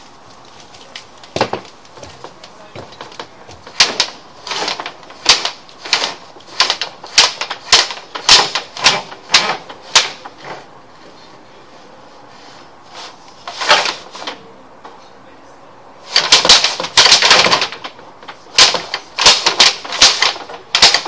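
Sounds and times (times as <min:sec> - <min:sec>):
cable clacking: 0:00.0 - 0:10.7, 0:16.1 - 0:21.0.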